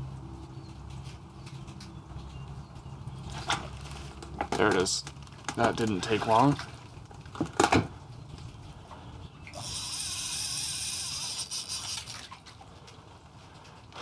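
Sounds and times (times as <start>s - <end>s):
fishing reel drag buzzing: 9.5s - 12.4s.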